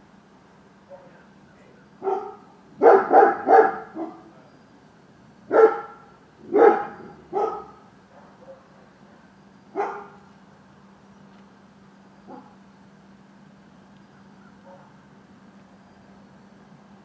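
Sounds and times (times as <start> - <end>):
dog barking: 0.9 - 1.2, 2.0 - 4.3, 5.5 - 8.9, 9.8 - 10.2, 12.3 - 12.6, 14.4 - 15.0.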